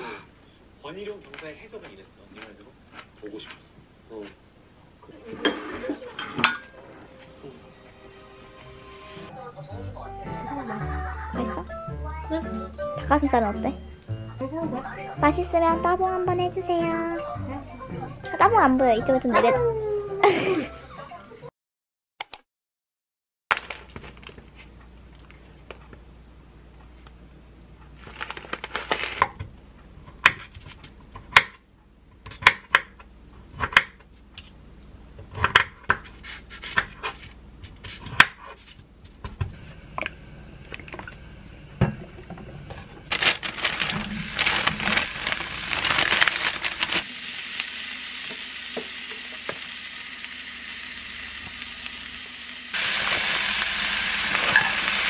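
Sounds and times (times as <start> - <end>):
knife and scissors cutting on board: 35.3 - 38.8
food sizzling in frying pan: 43.8 - 55.0.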